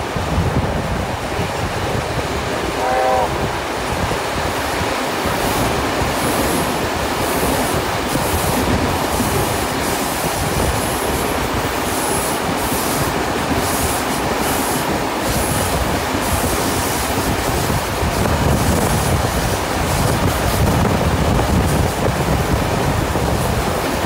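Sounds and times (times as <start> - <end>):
train carriages rumbling on track: 0.0 - 24.0.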